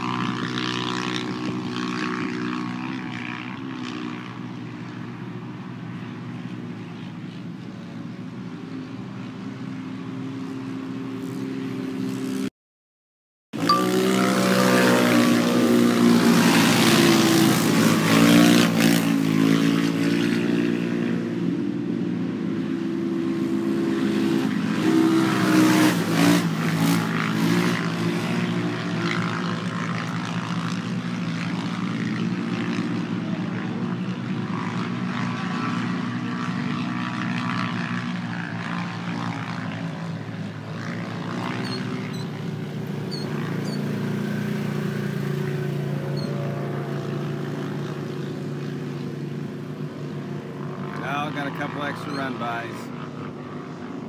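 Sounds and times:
vehicle engines revving: 13.6s - 54.0s.

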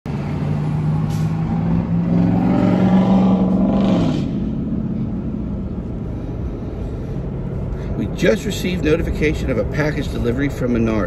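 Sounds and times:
car engine accelerating: 0.1s - 7.7s
road and wind noise: 0.1s - 11.0s.

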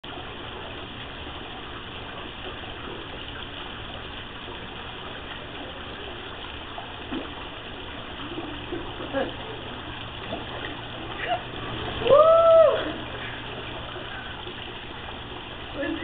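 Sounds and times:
running water rushing: 0.0s - 16.0s.

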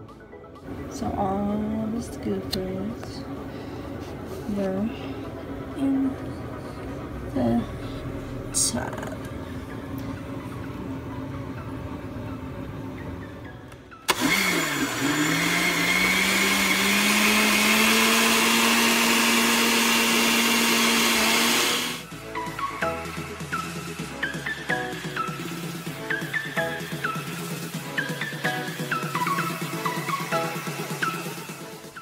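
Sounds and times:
blender motor whirring: 14.1s - 22.1s.

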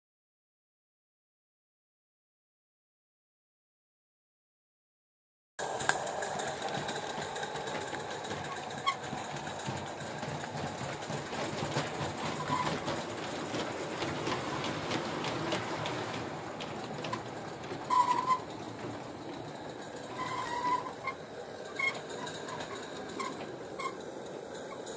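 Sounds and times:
model train rhythmic clatter: 5.6s - 24.9s.

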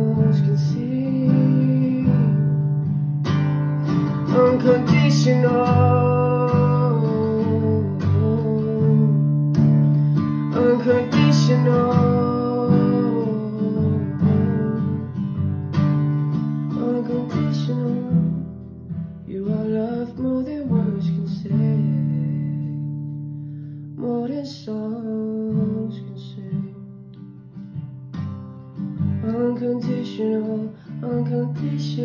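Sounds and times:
man singing: 0.0s - 2.6s, 3.8s - 15.2s, 16.7s - 18.4s, 19.2s - 22.9s, 24.0s - 27.0s, 29.1s - 32.0s
acoustic guitar strumming: 0.0s - 32.0s.

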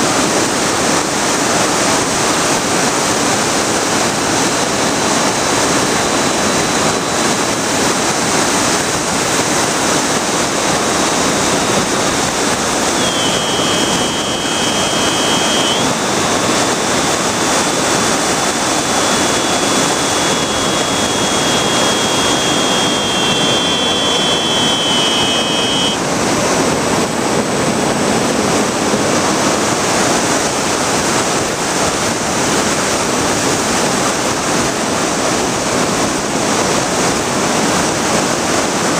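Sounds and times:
propeller noise: 0.0s - 36.6s
wind rush: 0.2s - 34.8s
electric motor high whine: 3.9s - 26.1s.

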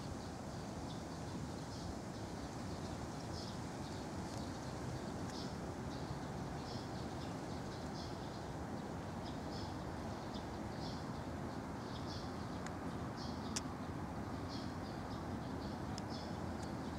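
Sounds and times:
small birds chirping: 0.0s - 16.9s
distant city traffic: 7.9s - 16.9s.

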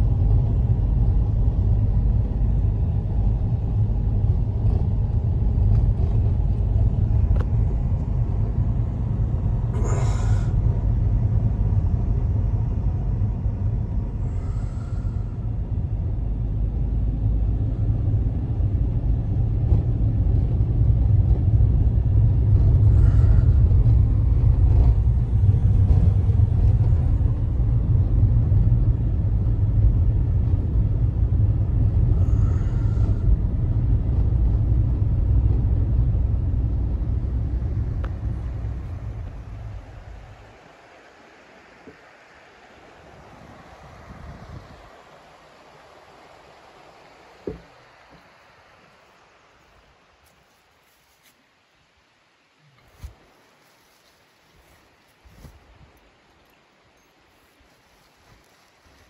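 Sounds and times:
car driving on snowy road: 0.0s - 51.4s.

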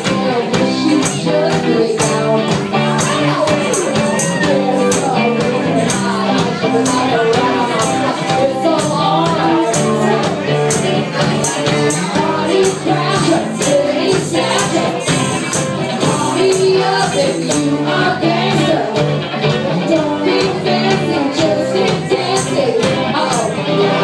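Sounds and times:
drums with cymbal hits: 0.0s - 24.0s
electric guitars: 0.0s - 24.0s
woman singing into a microphone: 0.0s - 24.0s.

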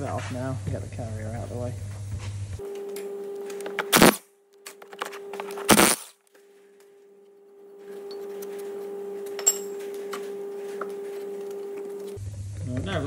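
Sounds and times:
impact driver bursts: 3.7s - 4.2s, 5.6s - 6.1s.

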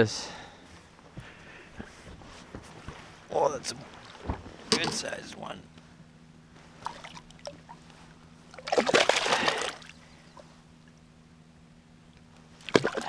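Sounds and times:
fish splashing at water surface: 8.6s - 10.0s, 12.6s - 13.0s.

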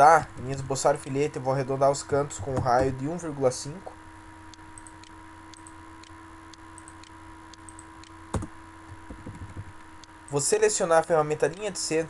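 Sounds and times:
low electrical hum: 0.0s - 12.0s
computer mouse clicks: 4.8s - 5.8s.

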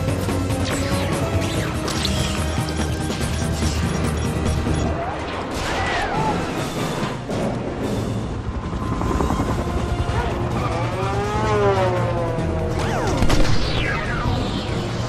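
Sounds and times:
helicopter drone: 0.0s - 5.6s, 6.2s - 15.0s
music: 0.0s - 15.0s
engine whine: 6.7s - 15.0s
motorcycle engine drone: 7.8s - 15.0s.

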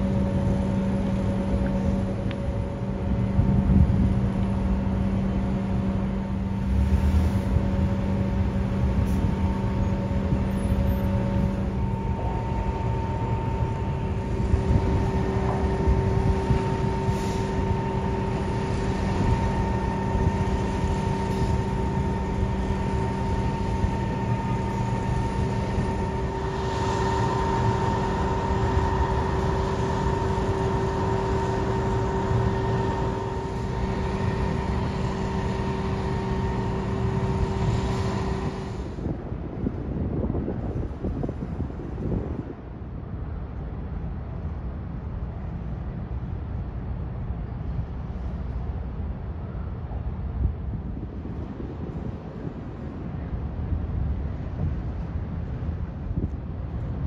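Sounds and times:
drone of pitched tones: 0.0s - 39.0s
ship engines rumbling: 0.0s - 57.0s.

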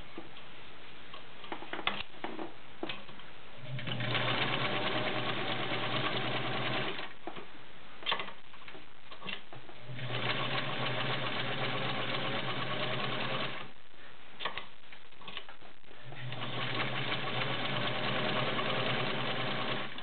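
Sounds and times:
sewing machine running: 3.7s - 7.1s, 9.8s - 13.7s, 16.2s - 20.0s.

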